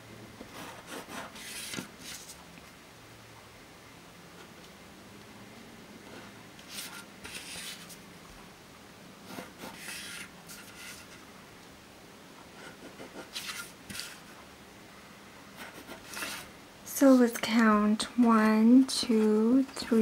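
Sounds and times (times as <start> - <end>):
pen scratching along ruler: 0.5 - 2.3, 6.6 - 8.0, 9.3 - 11.1, 12.6 - 14.3, 15.6 - 16.5.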